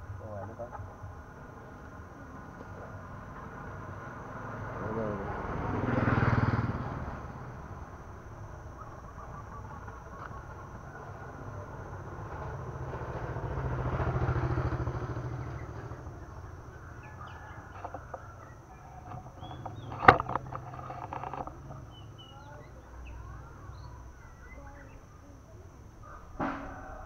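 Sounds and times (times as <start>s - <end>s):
motorbike engine passing: 0.0s - 27.0s
small birds chirping: 8.1s - 12.0s, 14.0s - 26.2s
sharp knock with rattle: 26.4s - 27.0s.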